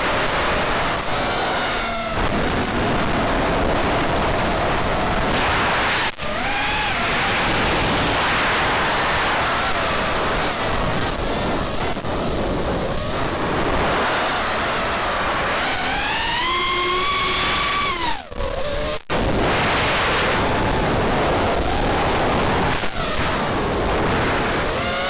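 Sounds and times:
wind rush: 0:00.0 - 0:18.2, 0:19.1 - 0:25.0
drone motors whining: 0:00.0 - 0:25.0.

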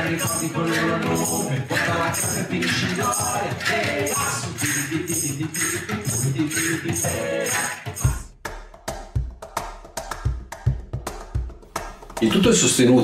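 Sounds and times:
jingling percussion: 0:00.0 - 0:08.3
person singing: 0:00.0 - 0:08.3
cajon thumps and slaps: 0:08.5 - 0:12.5.

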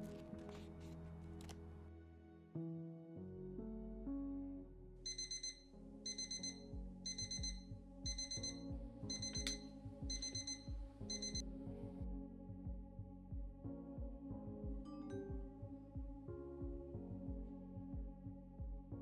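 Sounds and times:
soft background music: 0:00.0 - 0:19.0
phone alarm beeping: 0:05.1 - 0:11.4.

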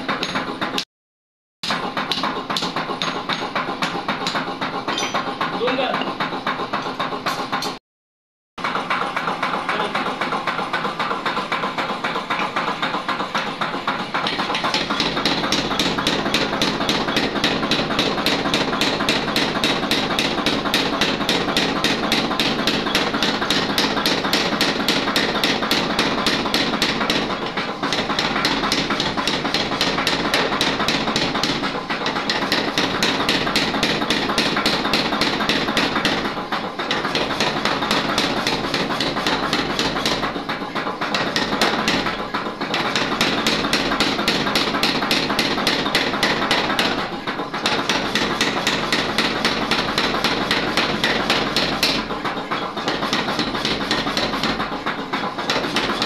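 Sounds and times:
power hammer pounding hot iron: 0:00.0 - 0:00.9, 0:01.6 - 0:07.8, 0:08.6 - 0:56.0.

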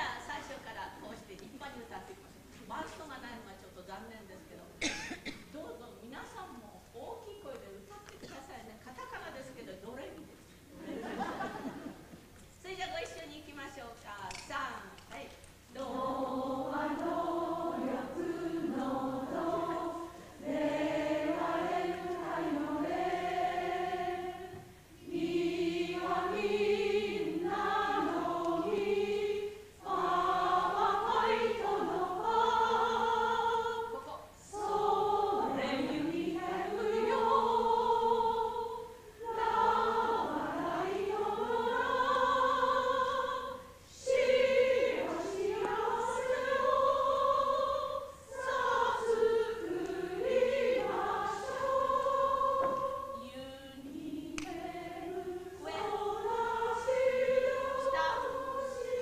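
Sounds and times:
group of voices singing: 0:15.7 - 0:59.0.

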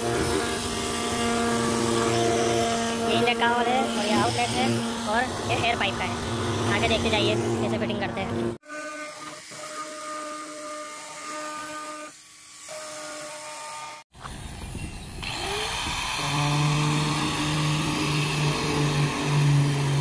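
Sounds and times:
machine hum: 0:00.0 - 0:08.6, 0:13.8 - 0:20.0
power drill hole saw cutting plastic: 0:00.0 - 0:14.1, 0:15.2 - 0:20.0.

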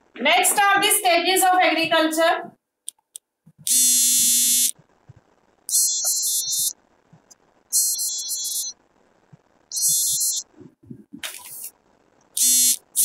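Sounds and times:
smartphone ringtone: 0:05.7 - 0:06.7, 0:07.8 - 0:08.7, 0:09.7 - 0:10.5.

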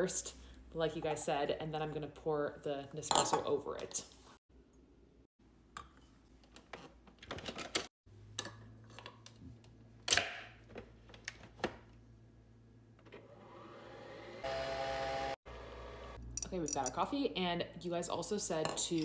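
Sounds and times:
coffee machine motor whine: 0:13.1 - 0:16.2.

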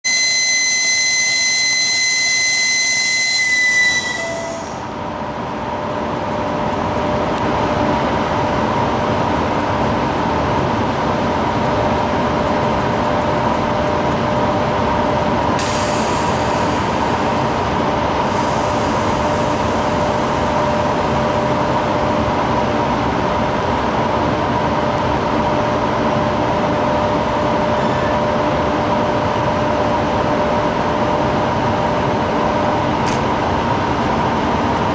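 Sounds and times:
electric locomotive whistle: 0:00.0 - 0:05.0
locomotive running hum and whine: 0:00.0 - 0:34.9.

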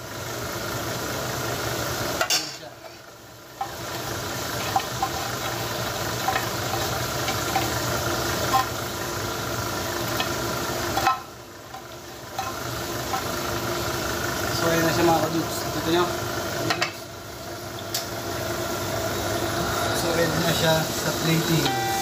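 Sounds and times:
chicken wings sizzling in a pan: 0:00.1 - 0:22.0
utensil clinking on pan: 0:04.6 - 0:08.7, 0:10.1 - 0:13.3.

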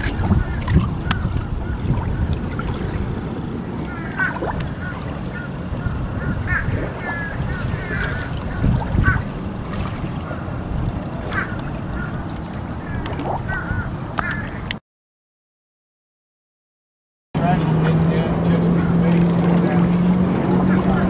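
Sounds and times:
steady low rumble: 0:00.0 - 0:14.2
waterbirds calling: 0:00.0 - 0:14.8, 0:17.4 - 0:21.0.

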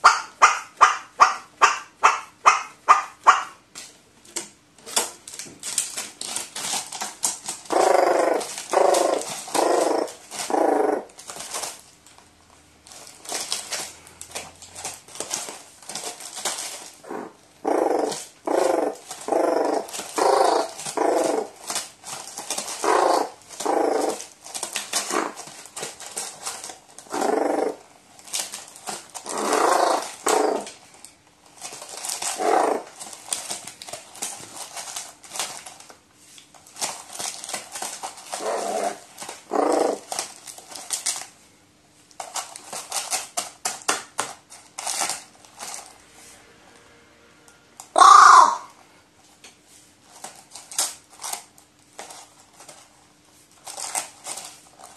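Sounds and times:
crow rattle calls: 0:00.0 - 0:03.6, 0:07.6 - 0:11.1, 0:17.0 - 0:21.6, 0:22.7 - 0:24.2, 0:27.1 - 0:27.8, 0:29.2 - 0:30.7, 0:32.2 - 0:33.0, 0:47.9 - 0:48.7
crow loud clear call: 0:47.9 - 0:48.8.

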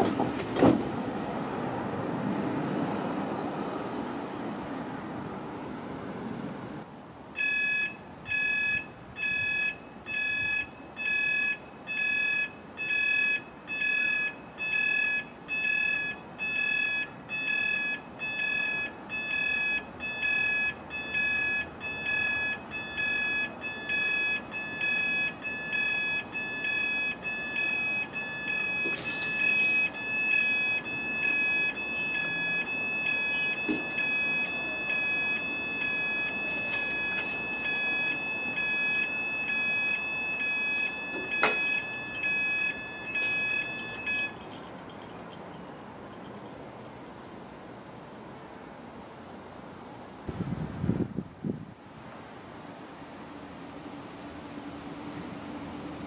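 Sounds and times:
level crossing alarm beeping: 0:07.4 - 0:45.7.

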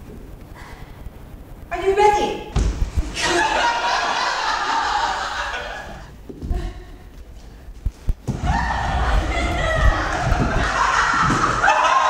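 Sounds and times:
group of voices: 0:03.1 - 0:06.1, 0:08.3 - 0:12.0.

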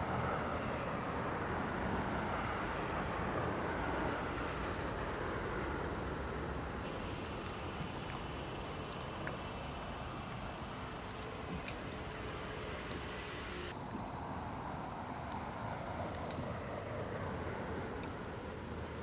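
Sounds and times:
high-pitched insect chorus: 0:06.1 - 0:16.0.

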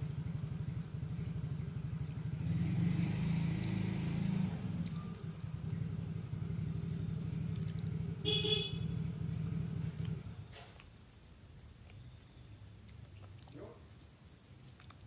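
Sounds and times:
low engine drone: 0:00.0 - 0:10.6
faint insect chirping: 0:00.0 - 0:15.0.

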